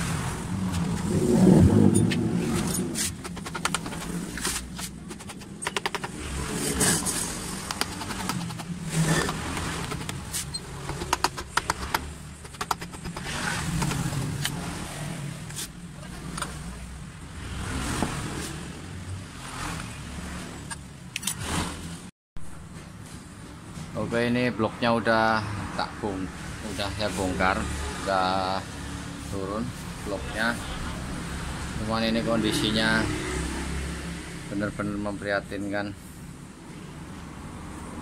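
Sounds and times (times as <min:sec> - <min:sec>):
metal clinks and scraping: 0:01.9 - 0:05.7
hand tool clicks: 0:05.1 - 0:06.2, 0:07.6 - 0:13.2
sharp knocks: 0:05.1 - 0:06.3, 0:07.6 - 0:14.1.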